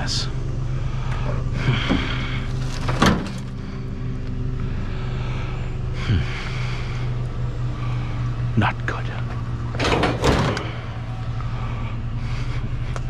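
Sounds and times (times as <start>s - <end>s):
truck engine droning: 0.0s - 13.0s
loud clunk: 9.8s - 10.9s.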